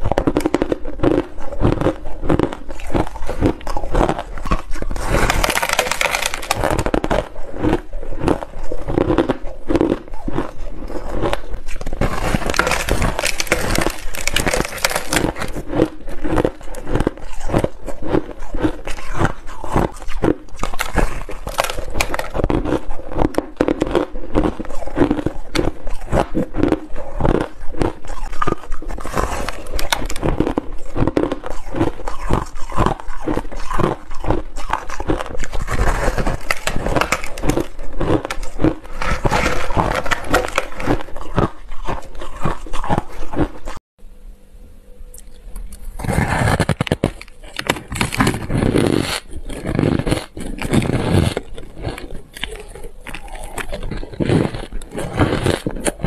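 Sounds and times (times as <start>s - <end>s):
crushed ice being chewed: 0.0s - 43.8s, 45.2s - 56.0s.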